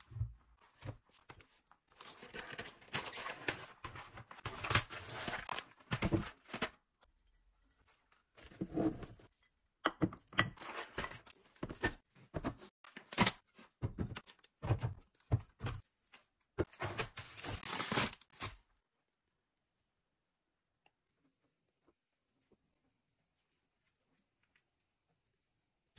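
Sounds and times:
groceries knocking and scraping: 0.0s - 7.0s, 9.9s - 16.0s.

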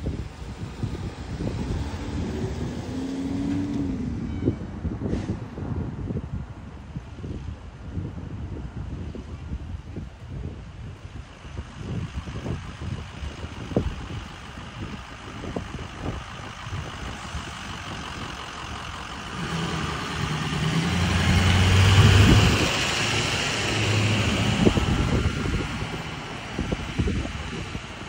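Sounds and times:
truck driving past: 0.0s - 6.0s, 13.2s - 28.0s.

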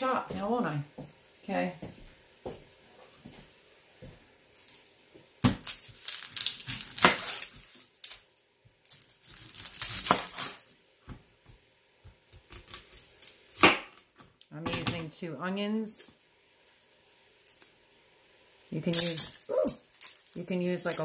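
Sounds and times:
knife crackling through onion skin: 4.6s - 10.7s, 12.3s - 14.2s, 18.9s - 21.0s.

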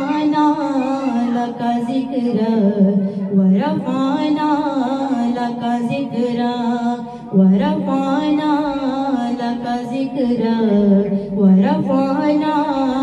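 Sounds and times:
woman singing into a microphone: 0.0s - 13.0s.

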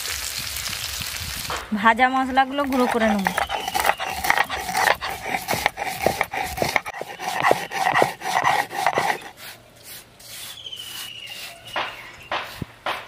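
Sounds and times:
stone grinder crunching spices: 2.2s - 13.0s.

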